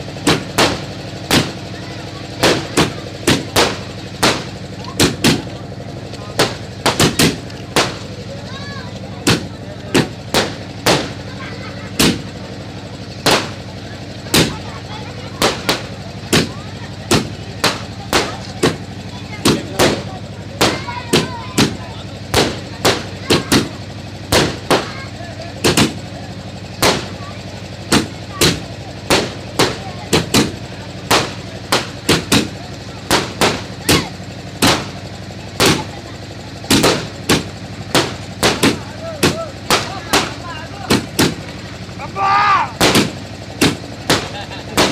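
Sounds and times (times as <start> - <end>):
firecrackers banging: 0.0 - 44.9
fireworks exploding with echo: 9.0 - 12.6, 27.9 - 41.6, 42.8 - 44.9.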